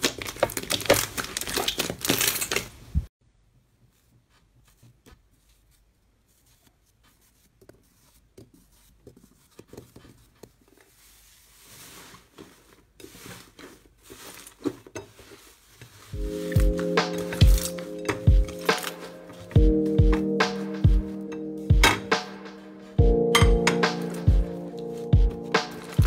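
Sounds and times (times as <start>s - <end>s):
slime clicking and crackling: 0.0s - 2.7s
music with bass beat: 16.2s - 26.0s.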